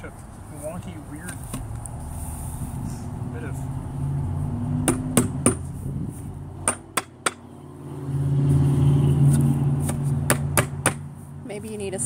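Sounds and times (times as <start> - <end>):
car engine humming: 0.0 - 12.0
mallet knocking on wood: 4.8 - 5.6, 6.6 - 7.4, 9.9 - 11.0.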